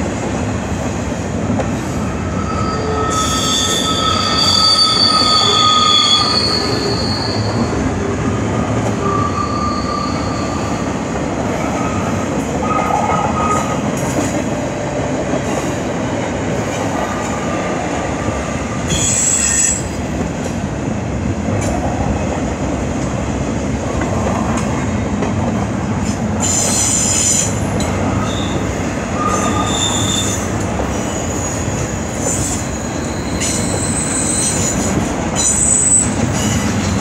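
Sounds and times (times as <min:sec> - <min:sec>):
freight train rumbling: 0:00.0 - 0:37.0
train wheels squealing: 0:02.0 - 0:07.8, 0:09.0 - 0:11.0, 0:18.9 - 0:20.0, 0:26.4 - 0:37.0.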